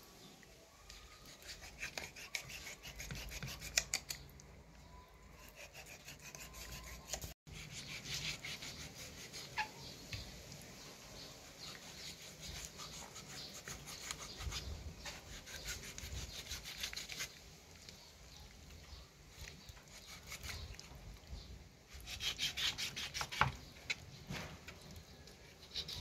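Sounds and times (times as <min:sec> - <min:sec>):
knife sawing through meat: 0:01.2 - 0:04.0, 0:05.4 - 0:09.7, 0:11.6 - 0:17.4.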